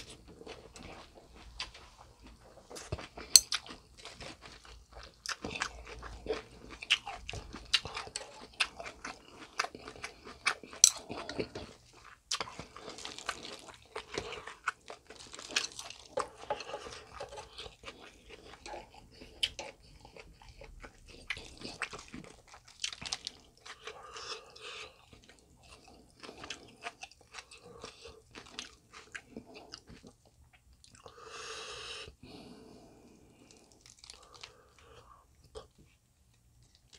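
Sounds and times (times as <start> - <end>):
wet crunching and chewing: 0.0 - 31.2, 33.1 - 36.9.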